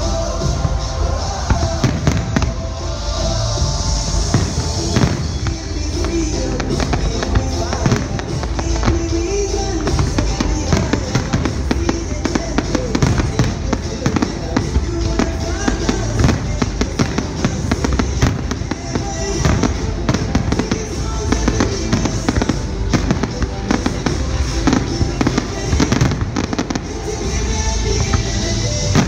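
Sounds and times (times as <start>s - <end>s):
firework crackles: 0.0s - 29.0s
music playing: 0.0s - 29.0s.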